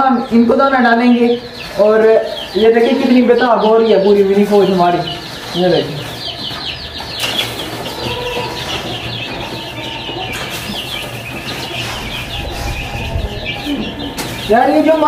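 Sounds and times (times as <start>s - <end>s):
small birds chirping: 0.0s - 15.0s.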